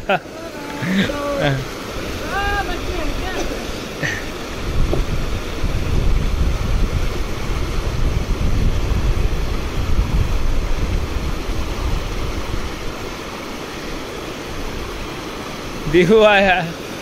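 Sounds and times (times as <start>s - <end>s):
wind buffeting microphone: 0.0s - 16.0s
rushing river water: 0.0s - 17.0s.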